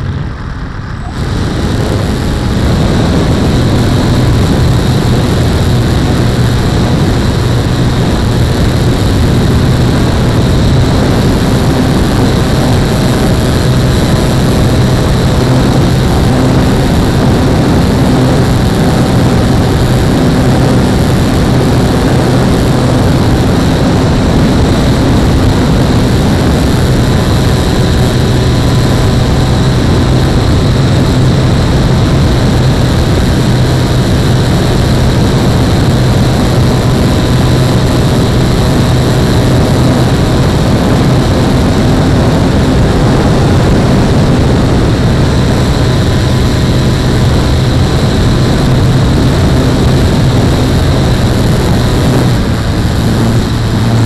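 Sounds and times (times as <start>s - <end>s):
propeller motor hum: 0.0s - 54.0s
wind rushing: 0.0s - 54.0s.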